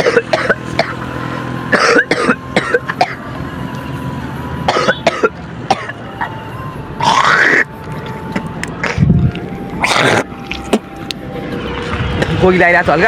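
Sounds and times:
man coughing: 0.0 - 1.0, 1.7 - 3.2, 4.7 - 6.0.

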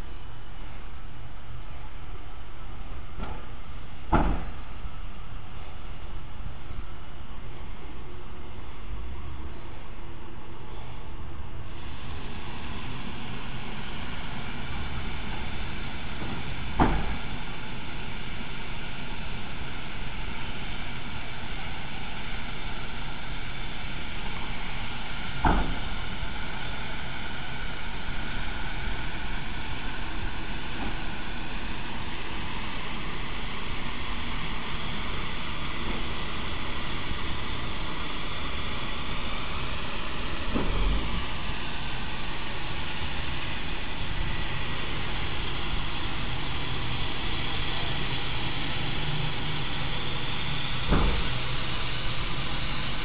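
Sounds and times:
steam locomotive hissing: 0.0 - 53.0
sharp knocks: 4.1 - 4.6, 16.2 - 17.2, 25.4 - 25.9.

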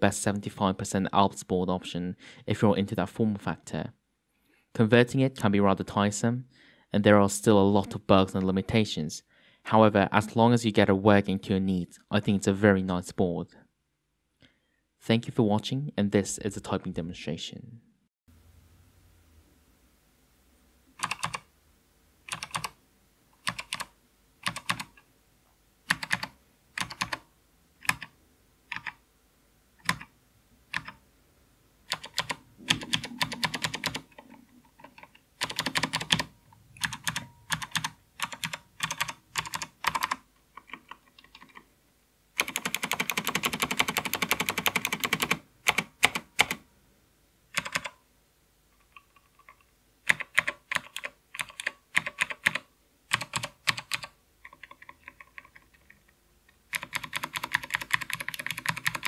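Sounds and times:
clicky keyboard typing: 21.0 - 21.5, 22.3 - 22.8, 23.4 - 25.0, 25.9 - 28.1, 28.7 - 29.0, 29.8 - 30.1, 30.7 - 31.0, 31.9 - 41.7, 42.4 - 46.6, 47.6 - 48.0, 48.8 - 56.0, 56.7 - 59.0.

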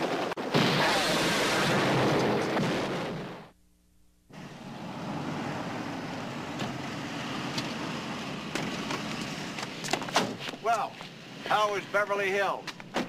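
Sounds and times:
car engine and road noise: 4.3 - 13.0.

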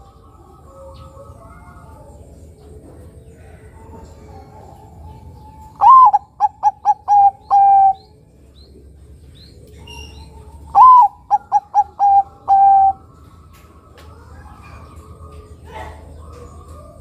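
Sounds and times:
dove cooing: 0.0 - 13.5.

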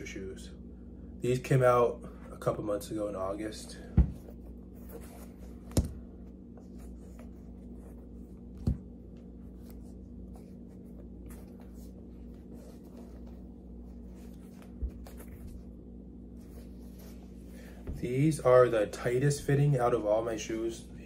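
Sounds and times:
steady low hum: 0.0 - 21.0
dull thump: 3.9 - 4.3
sneaker rubbing and rustling: 3.9 - 18.2.

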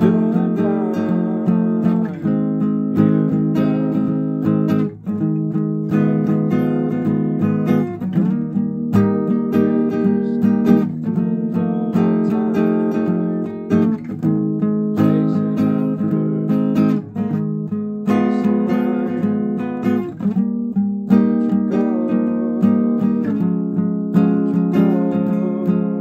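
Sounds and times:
fingerpicked acoustic guitar: 0.0 - 26.0.

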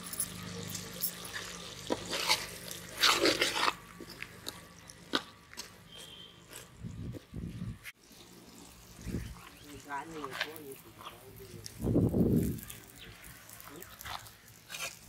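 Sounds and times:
thick gravy sloshing: 0.4 - 6.8, 7.9 - 15.0
ladle scraping a metal pot: 1.2 - 4.2.

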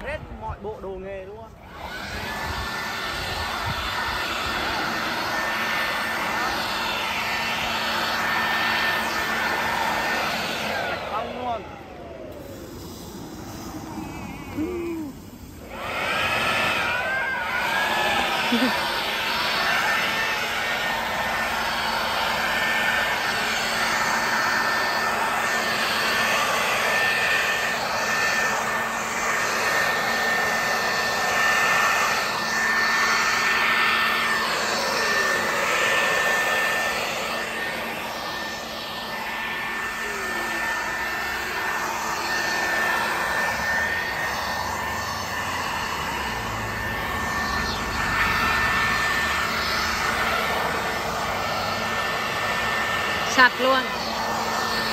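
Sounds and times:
electric leaf blower whining: 0.0 - 54.9
rush of air: 1.6 - 25.2.

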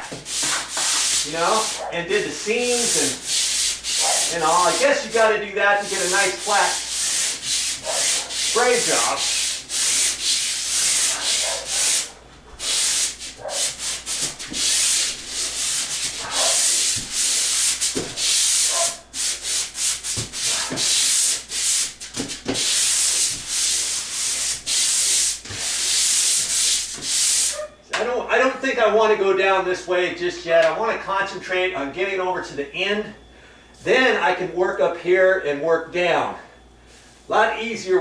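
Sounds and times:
sandpaper rasping on drywall: 0.0 - 27.6.

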